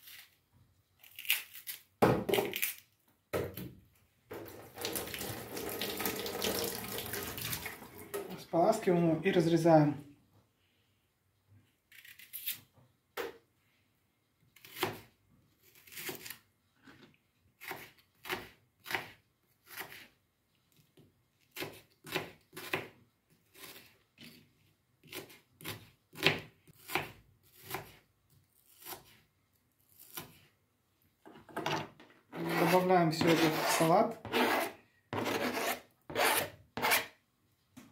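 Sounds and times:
knife slicing onion on board: 0:14.6 - 0:16.4, 0:17.6 - 0:20.2, 0:21.5 - 0:24.4, 0:25.0 - 0:28.0, 0:28.6 - 0:29.2, 0:29.9 - 0:30.5, 0:32.4 - 0:37.2.

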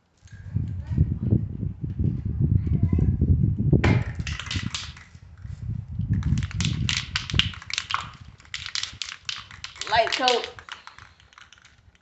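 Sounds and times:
wind rumbling on microphone: 0:00.0 - 0:12.0
spray can ball rattling: 0:04.2 - 0:05.1, 0:06.1 - 0:12.0.

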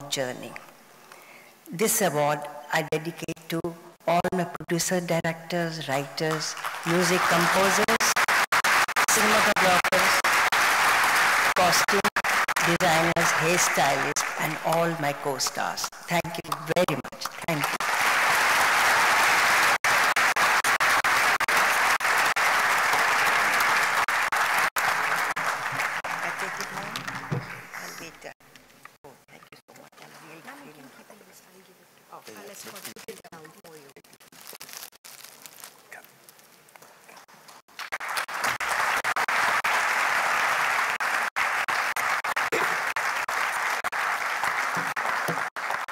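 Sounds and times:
audience applauding: 0:06.2 - 0:15.4, 0:16.4 - 0:28.0, 0:37.7 - 0:45.9.

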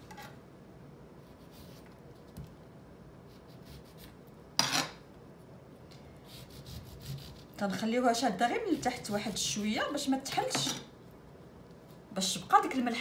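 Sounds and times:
knife cutting lemon rind: 0:06.3 - 0:07.6.

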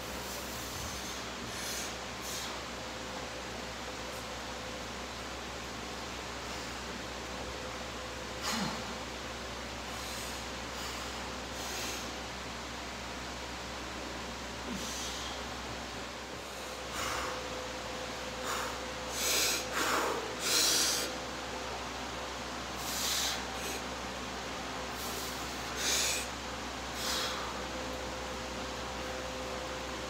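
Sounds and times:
steady background hum: 0:00.0 - 0:30.0
man breathing heavily: 0:00.2 - 0:02.7, 0:08.3 - 0:09.1, 0:09.8 - 0:12.3, 0:14.6 - 0:21.5, 0:22.7 - 0:24.1, 0:24.9 - 0:27.8.

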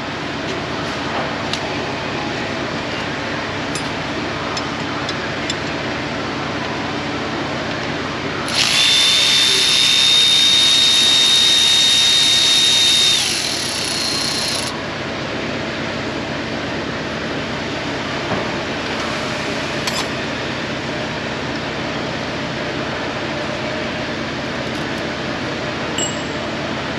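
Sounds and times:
electric ratchet whining: 0:08.5 - 0:14.8.

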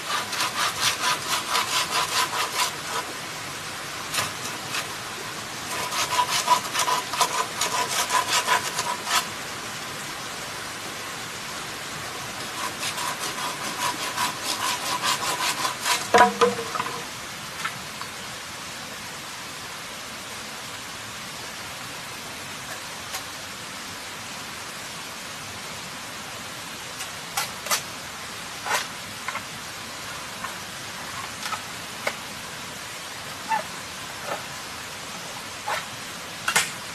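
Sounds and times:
hand saw cutting bamboo: 0:00.0 - 0:03.1, 0:04.1 - 0:05.0, 0:05.7 - 0:09.3, 0:12.4 - 0:17.0, 0:28.6 - 0:29.4, 0:33.5 - 0:34.5, 0:35.6 - 0:35.9
steady hiss: 0:00.0 - 0:36.9
sharp knocks: 0:16.1 - 0:17.0.

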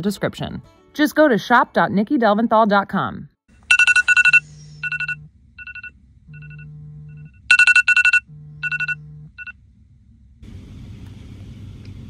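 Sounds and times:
low phone buzz: 0:03.7 - 0:09.5
rapid electronic alarm beeps: 0:03.7 - 0:09.5.

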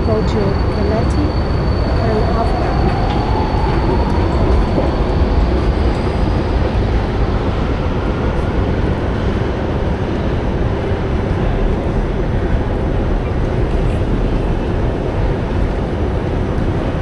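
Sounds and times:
metro station rumble: 0:00.0 - 0:17.0
metro train whine: 0:00.0 - 0:17.0.

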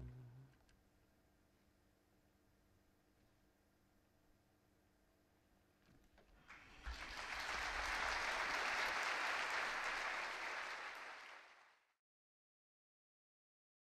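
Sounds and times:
audience applauding: 0:06.4 - 0:11.9.

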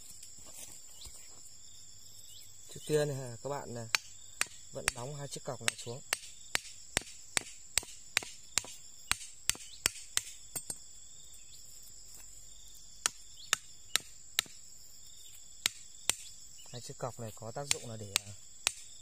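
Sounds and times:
insects chirring: 0:00.0 - 0:19.0
machete knocking wooden stakes: 0:03.8 - 0:10.9, 0:13.0 - 0:14.6, 0:15.3 - 0:16.4, 0:17.3 - 0:19.0.

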